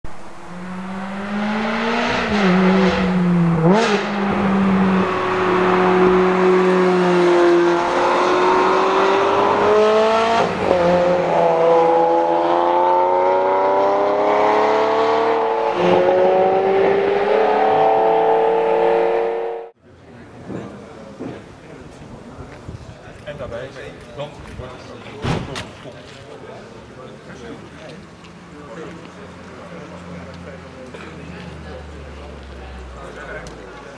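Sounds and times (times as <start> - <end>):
car engine accelerating hard: 0.1 - 19.8.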